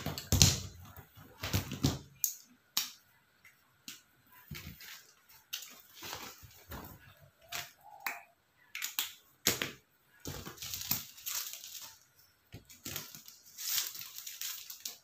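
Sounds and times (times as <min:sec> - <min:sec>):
paper rustling: 0:04.5 - 0:07.1, 0:12.7 - 0:15.0.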